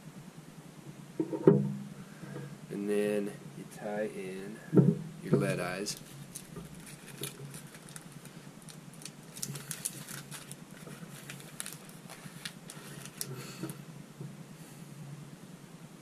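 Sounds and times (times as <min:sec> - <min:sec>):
hands rustling: 0:05.9 - 0:13.8.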